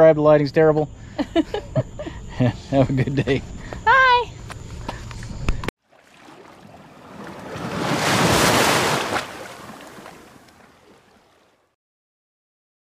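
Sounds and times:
ocean wave washing: 5.8 - 11.7.

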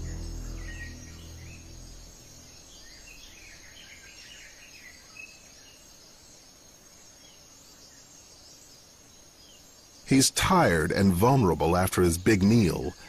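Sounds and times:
background music: 0.0 - 3.7
birds chirping: 0.0 - 13.0
high insect drone: 0.0 - 13.0.

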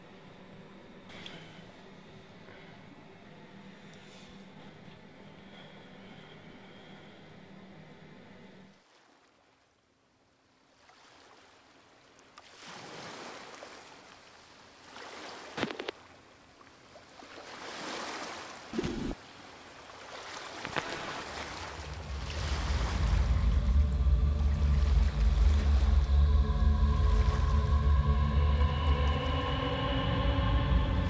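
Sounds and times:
low droning tone: 0.0 - 8.7, 21.8 - 31.0
wind: 0.0 - 31.0
waves washing on shore: 17.2 - 23.6.

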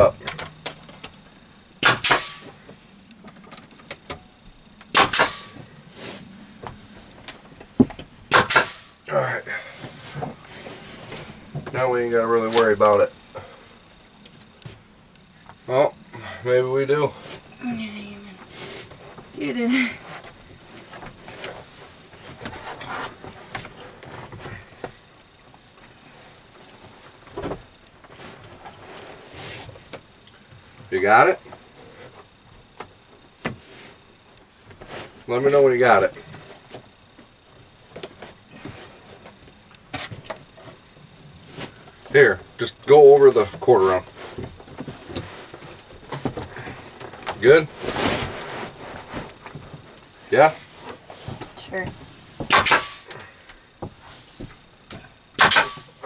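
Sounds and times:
nail gun firing: 1.8 - 2.5, 4.9 - 5.6, 8.3 - 9.0, 52.5 - 53.1, 55.4 - 56.0
sharp click: 1.8 - 2.5, 4.8 - 5.6, 8.3 - 9.0, 52.5 - 53.1, 55.4 - 56.0.

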